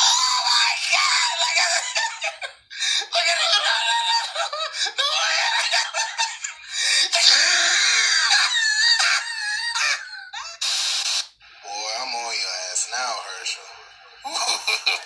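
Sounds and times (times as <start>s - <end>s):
voices through phone speaker: 0.0s - 15.0s
laughter through phone speaker: 1.5s - 2.6s, 3.4s - 7.3s, 13.6s - 15.0s.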